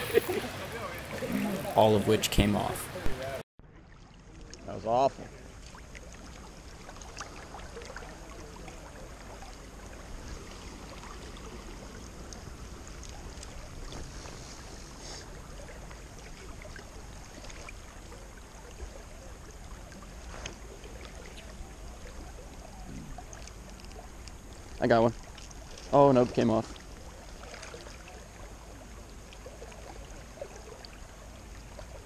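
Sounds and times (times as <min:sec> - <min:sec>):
river current over rocks: 0:00.0 - 0:03.4.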